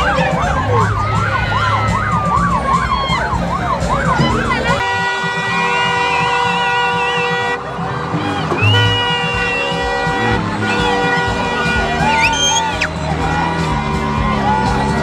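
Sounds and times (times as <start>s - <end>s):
siren yelping: 0.0s - 4.8s, 11.7s - 15.0s
crowd chatter: 0.0s - 15.0s.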